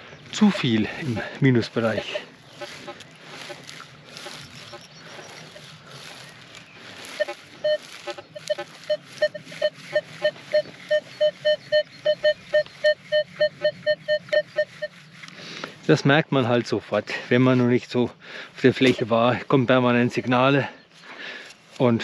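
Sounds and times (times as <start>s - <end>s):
soft rustling: 0.4s - 13.2s
metal detector beeping: 7.0s - 15.1s, 19.9s - 20.5s.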